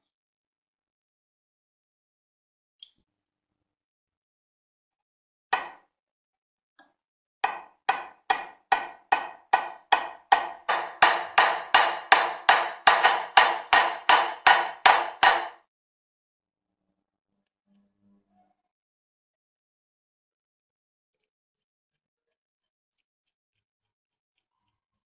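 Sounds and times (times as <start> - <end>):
hammer knocking on steel: 7.4 - 15.6.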